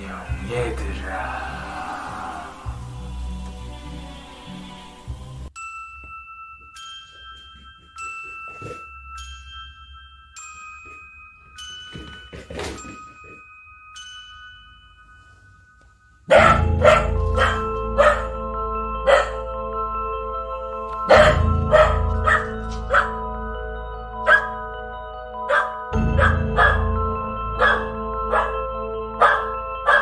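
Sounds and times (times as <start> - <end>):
chiming background music: 5.6 - 30.0
dog barking: 16.3 - 18.4, 19.1 - 19.5, 21.1 - 23.2, 24.3 - 24.6, 25.5 - 26.9, 27.6 - 28.6, 29.2 - 30.0.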